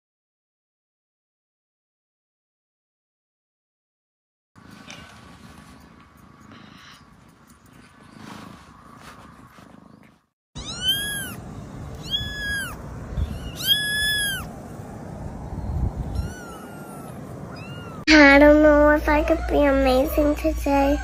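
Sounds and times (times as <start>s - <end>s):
kitten meowing: 10.6s - 14.5s, 15.6s - 18.1s.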